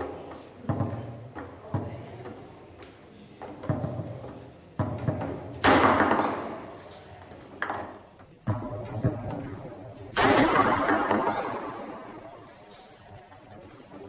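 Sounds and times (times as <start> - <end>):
foosball ball and rods knocking: 3.4 - 12.8.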